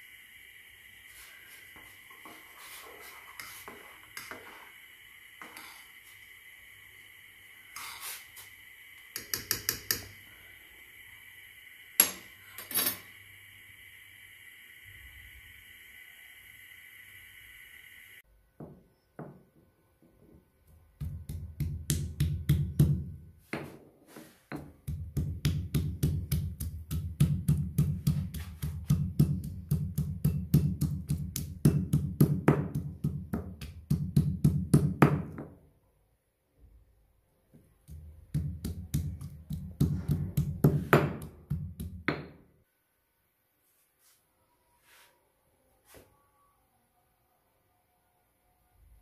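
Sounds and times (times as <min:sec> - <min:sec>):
stone pestle pounding in mortar: 0:21.0 - 0:23.7, 0:24.6 - 0:35.5, 0:37.9 - 0:42.4.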